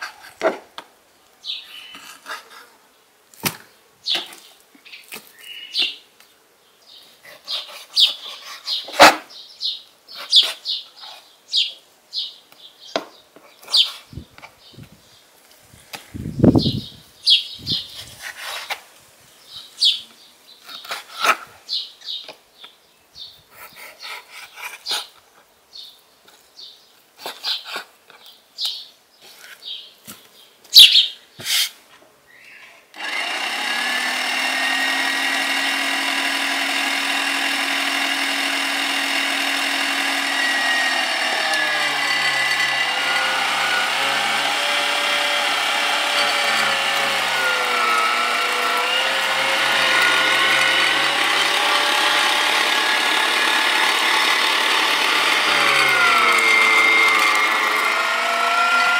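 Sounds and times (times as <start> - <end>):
electric meat grinder running: 33.0 - 58.9.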